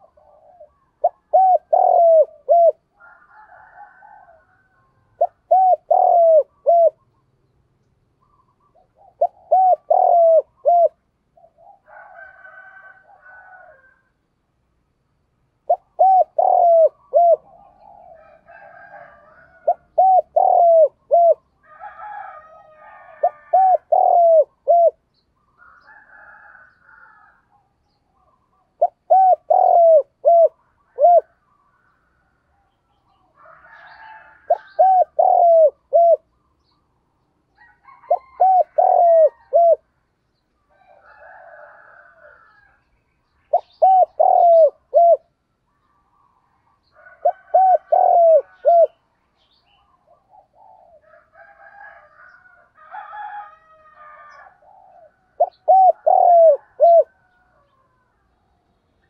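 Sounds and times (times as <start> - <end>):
dove cooing: 0.0 - 7.1, 8.2 - 14.0, 15.6 - 25.0, 25.7 - 31.5, 33.4 - 36.3, 37.6 - 39.9, 43.5 - 45.4, 46.0 - 49.0, 49.7 - 58.2
faint bird chirps: 4.6 - 12.0.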